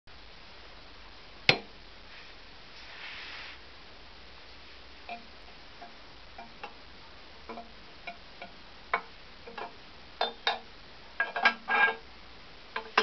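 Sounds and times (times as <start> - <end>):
metal exhaust pipe clinking: 7.5 - 12.0, 12.8 - 13.0.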